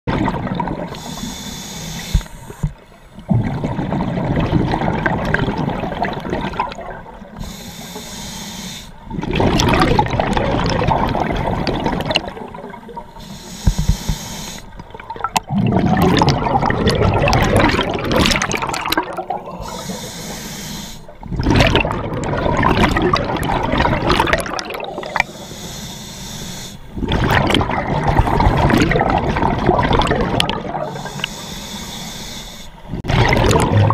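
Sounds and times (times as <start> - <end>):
bubbling exhalations underwater: 0.1 - 1.0, 3.2 - 7.4, 9.1 - 13.0, 14.9 - 20.0, 21.2 - 25.3, 27.0 - 31.1, 32.9 - 33.9
hissing regulator inhalations: 0.9 - 3.2, 7.4 - 9.1, 13.2 - 14.8, 19.5 - 21.2, 25.1 - 27.0, 30.8 - 33.0.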